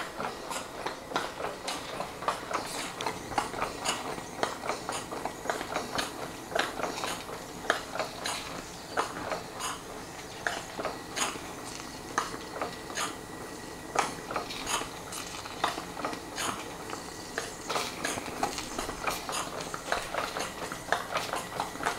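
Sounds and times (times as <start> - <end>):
steady steam hiss: 0.0 - 21.9
steam engine rods clicking and knocking: 0.0 - 21.9.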